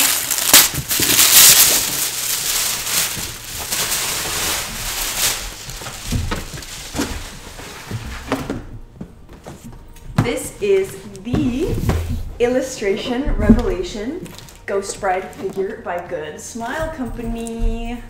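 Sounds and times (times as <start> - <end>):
tissue paper crackling: 0.0 - 8.2.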